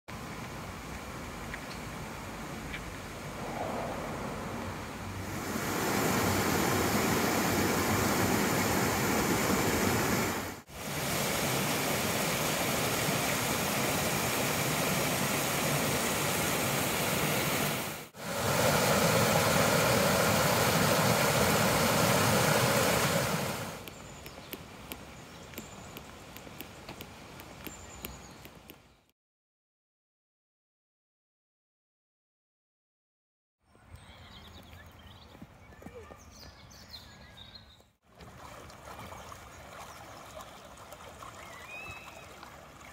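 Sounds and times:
stream rushing over stones: 5.3 - 28.8.

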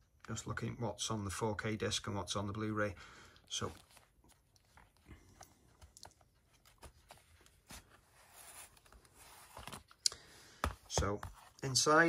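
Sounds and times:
cardboard packaging rustling: 3.6 - 10.0.

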